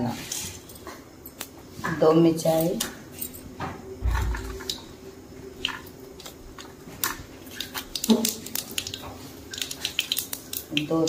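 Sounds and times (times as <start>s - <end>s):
faint steady hum: 0.0s - 11.0s
spices crackling in hot oil: 4.2s - 11.0s.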